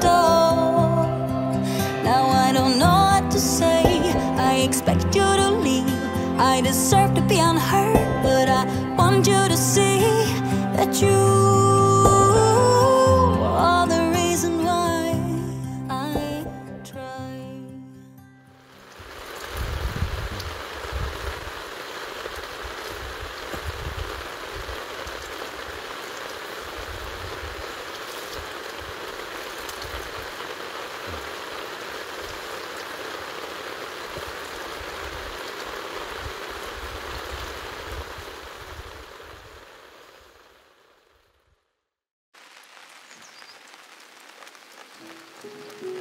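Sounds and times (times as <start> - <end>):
rushing water: 0.0 - 16.9, 18.6 - 40.7, 42.4 - 46.0
wind buffeting microphone: 19.5 - 21.5, 23.6 - 24.8.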